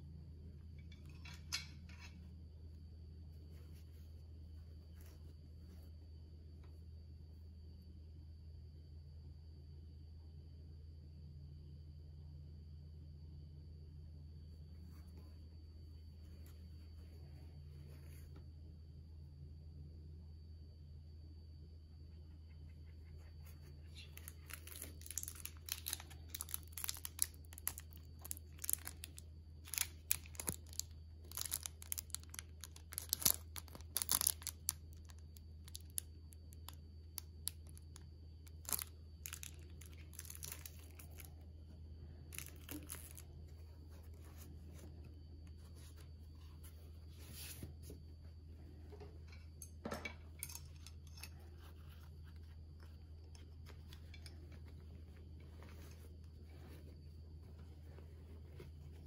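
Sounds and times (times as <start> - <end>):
steady low hum: 0.0 - 59.0
plastic bag crinkling: 24.0 - 36.0, 36.6 - 41.3, 42.3 - 43.3.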